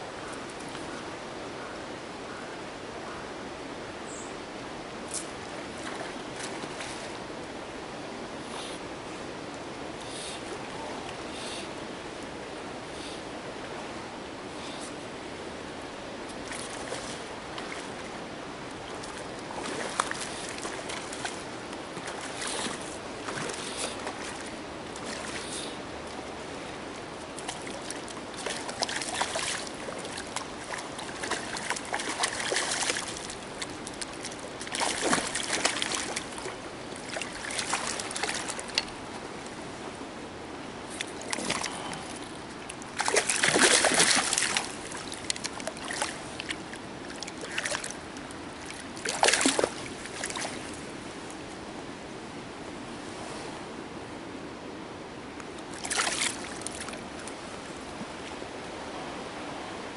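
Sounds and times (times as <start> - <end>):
fish splashing in water: 27.4 - 38.8, 42.9 - 48.0, 48.6 - 50.7, 55.7 - 57.0.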